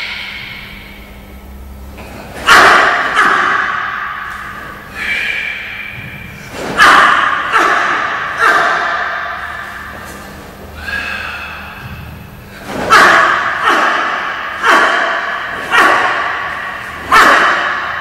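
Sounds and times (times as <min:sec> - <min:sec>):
footsteps thudding in a hall: 0:05.8 - 0:10.8, 0:11.7 - 0:18.0.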